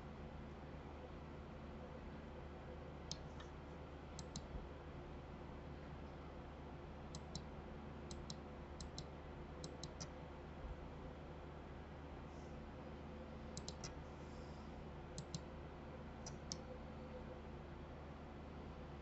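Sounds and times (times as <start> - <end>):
low steady hum: 0.0 - 19.0
faint mouse clicks: 3.0 - 3.6, 4.2 - 4.5, 7.1 - 7.5, 8.1 - 10.2, 13.5 - 14.0, 15.2 - 15.5, 16.2 - 16.7.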